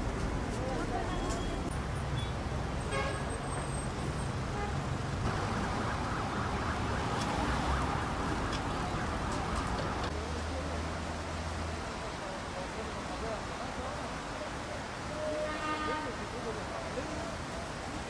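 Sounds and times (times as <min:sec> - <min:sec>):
city street traffic: 0:00.0 - 0:18.0
siren: 0:05.3 - 0:10.1.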